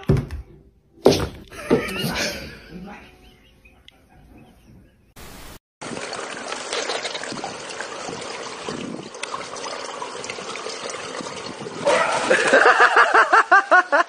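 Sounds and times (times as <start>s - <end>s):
tv static hiss: 5.2s - 5.6s
swimming pool water splashing: 5.8s - 14.0s.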